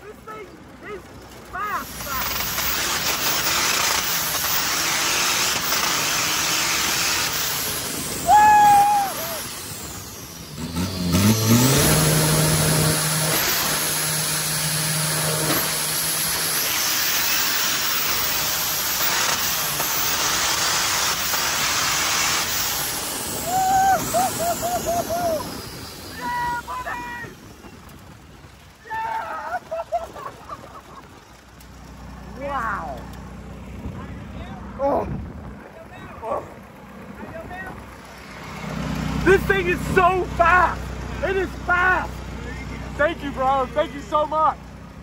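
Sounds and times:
truck engine running: 0.0s - 45.0s
people yelling: 8.2s - 9.5s, 23.3s - 27.4s, 28.8s - 30.0s.

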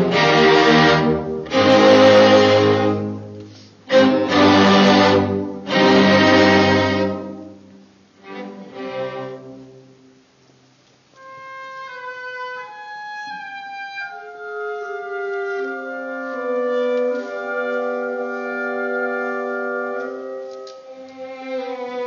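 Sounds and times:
orchestra strings chords: 0.0s - 10.4s, 11.2s - 22.0s.

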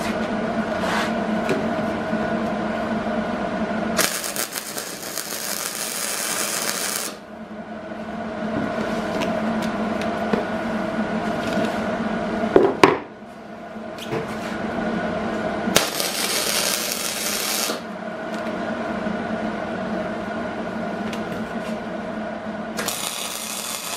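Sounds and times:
electrical hum: 0.0s - 23.9s
welding arc hissing: 4.0s - 7.2s, 15.7s - 17.9s, 22.8s - 23.9s.

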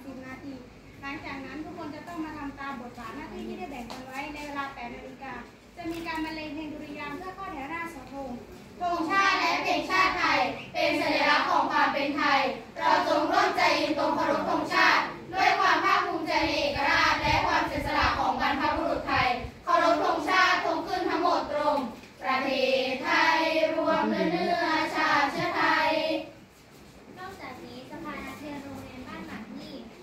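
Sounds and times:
girls singing in unison: 8.8s - 26.4s.

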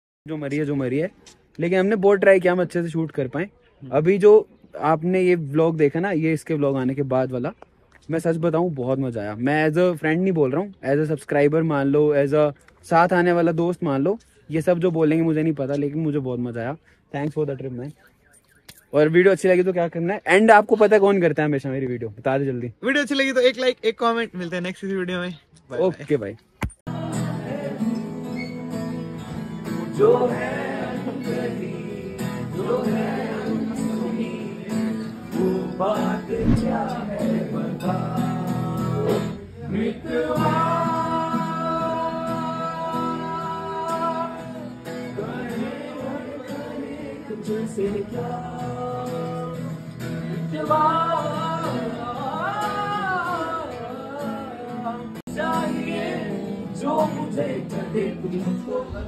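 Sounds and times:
acoustic guitar strumming: 26.9s - 58.9s
man singing: 29.8s - 59.0s.

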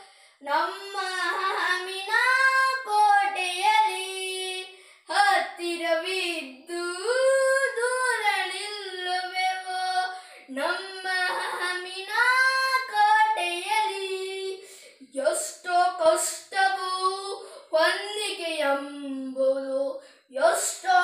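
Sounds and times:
breaths between phrases: 0.0s - 0.4s, 4.7s - 5.1s, 10.1s - 10.5s, 14.6s - 15.1s, 17.4s - 17.8s, 19.9s - 20.4s
boy singing solo: 0.0s - 21.0s.

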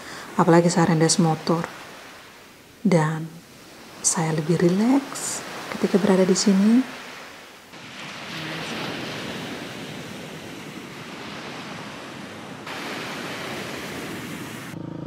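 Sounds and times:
ocean waves breaking on beach: 0.0s - 14.8s.

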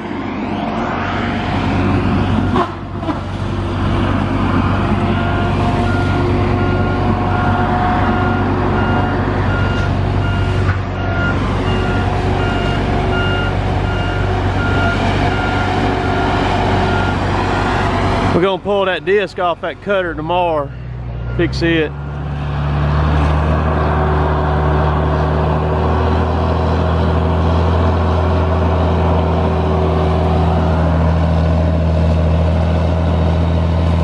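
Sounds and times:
heavy diesel engines running: 0.0s - 34.0s
back-up alarm beeping: 5.1s - 17.3s, 21.2s - 22.2s.

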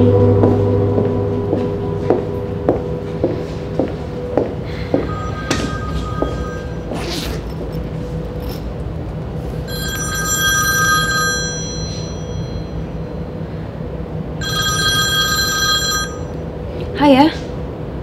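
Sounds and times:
steady low hum: 0.0s - 18.0s
smartphone ringtone: 5.0s - 7.0s, 9.6s - 13.0s, 14.4s - 16.4s.

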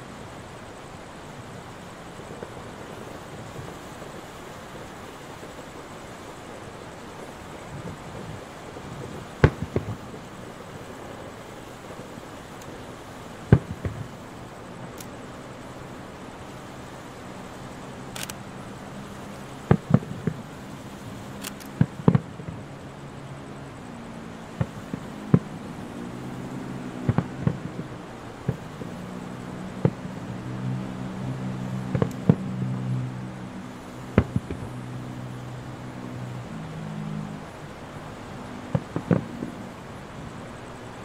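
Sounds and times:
steady low hum: 0.0s - 41.0s
fireworks bangs: 9.2s - 10.2s, 13.4s - 14.2s, 19.6s - 20.5s, 21.8s - 22.6s, 24.6s - 26.3s, 27.0s - 29.0s, 29.8s - 30.1s, 31.7s - 32.9s, 34.1s - 34.7s, 38.7s - 39.5s.

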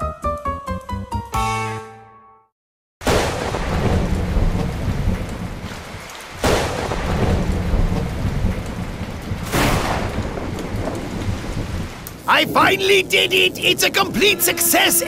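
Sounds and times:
thunder claps: 3.0s - 15.0s
heavy rain: 3.1s - 15.0s
deep rumble: 3.5s - 14.2s.

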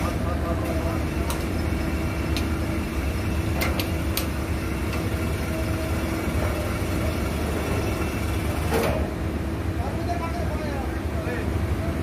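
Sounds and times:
drilling rig machinery drone: 0.0s - 12.0s.

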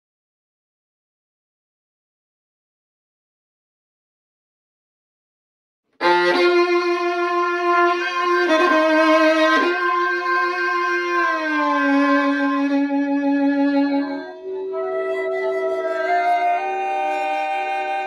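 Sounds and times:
violin playing long notes: 6.0s - 18.0s.

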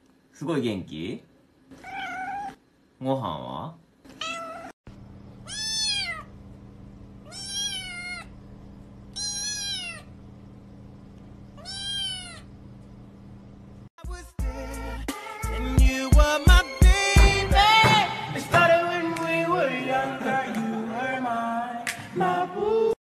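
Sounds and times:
kitten meowing: 1.8s - 2.6s, 4.1s - 4.7s, 5.4s - 6.3s, 7.3s - 8.3s, 9.1s - 10.1s, 11.6s - 12.5s
music: 14.0s - 23.0s.

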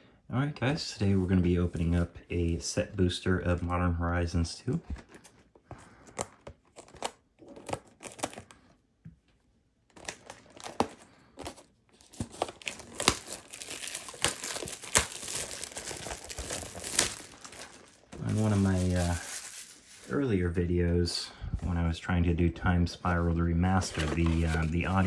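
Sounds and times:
plastic shrink-wrap crinkling: 9.9s - 20.5s, 23.8s - 25.0s.

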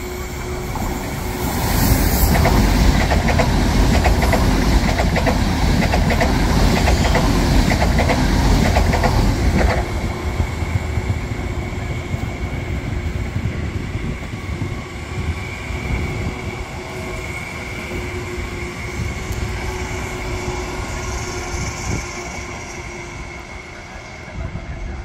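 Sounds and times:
train wheels rushing on rail: 0.0s - 25.0s
wheels clacking over rail joints: 2.3s - 10.0s.

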